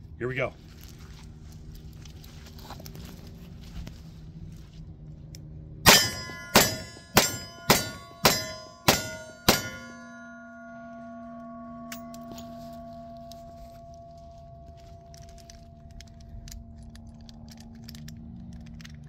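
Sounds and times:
bullets clanging on steel targets: 5.8 - 17.8.

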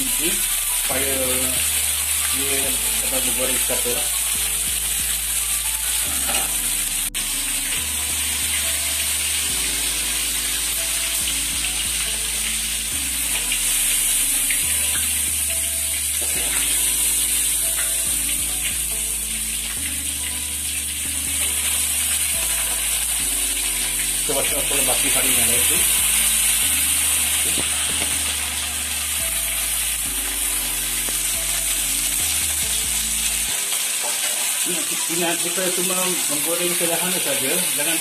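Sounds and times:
fish sizzling in oil: 0.0 - 38.0
soft background music: 0.0 - 38.0
metal spatula on wok: 33.7 - 35.2.

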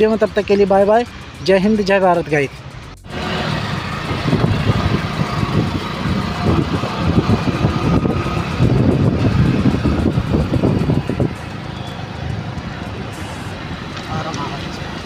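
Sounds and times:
road and traffic noise: 0.0 - 15.0
wind buffeting microphone: 3.0 - 15.0.

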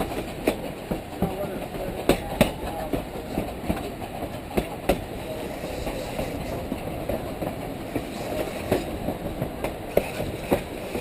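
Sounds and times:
train car rumbling on track: 0.0 - 11.0.

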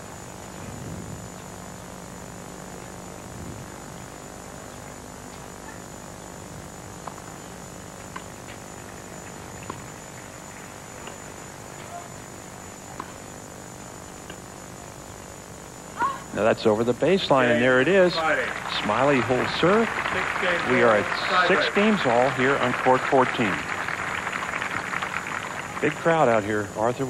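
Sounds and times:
steady hiss: 0.0 - 27.0
thin high whine: 0.0 - 27.0
tennis ball pops: 7.0 - 7.3.

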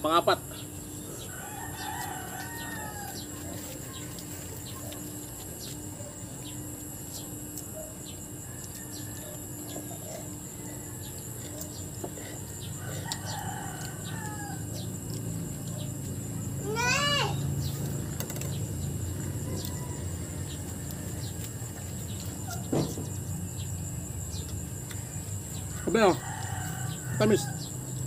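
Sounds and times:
rooster crowing: 1.1 - 4.0, 8.4 - 18.0, 19.0 - 21.9, 25.6 - 28.0.

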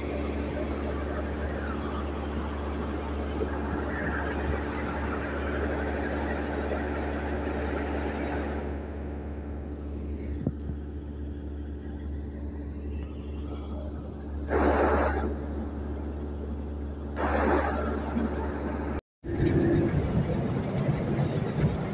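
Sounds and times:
combine harvester engine running: 0.0 - 21.9
grain pouring from auger: 14.5 - 15.4, 17.2 - 18.4.

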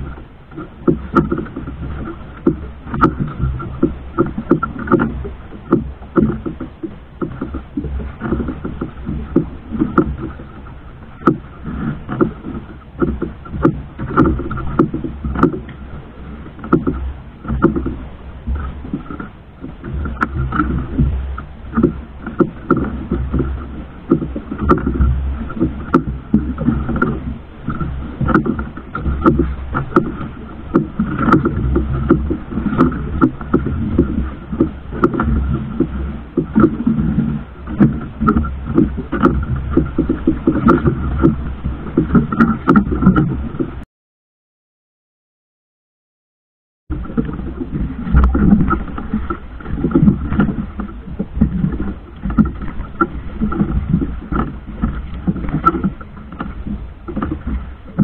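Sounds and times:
boat engine drone: 0.0 - 43.8, 46.9 - 58.0
knocks and splashes: 0.0 - 43.8, 46.9 - 58.0.

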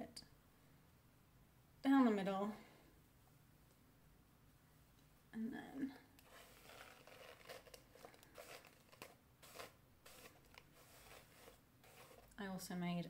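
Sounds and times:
hairbrush rustling through hair: 6.2 - 12.4.

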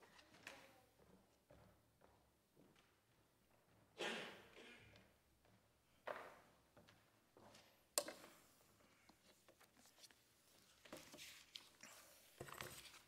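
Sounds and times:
faint paper rustling: 8.8 - 13.0.

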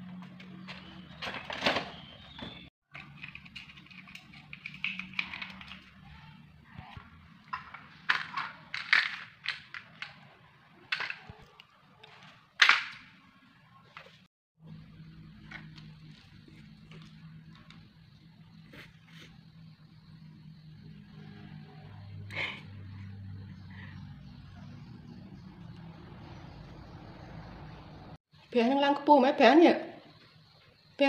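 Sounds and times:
plastic blocks clattering on tile: 3.0 - 6.1, 7.5 - 13.1.

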